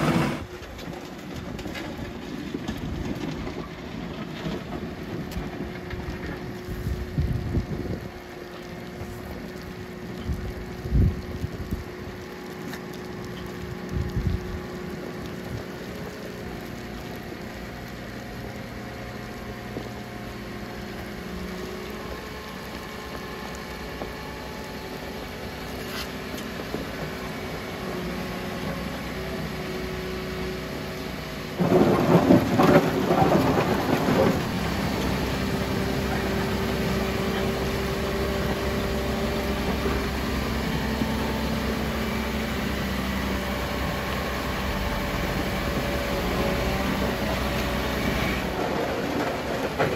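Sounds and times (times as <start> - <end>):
blade pushing gravel: 0.0 - 7.8, 23.8 - 29.1
diesel engine running: 0.0 - 49.9
loud rumbling rush: 31.6 - 41.4.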